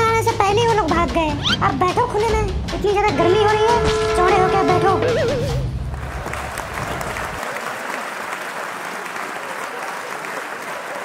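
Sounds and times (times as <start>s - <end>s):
crowd applauding: 4.7s - 11.0s.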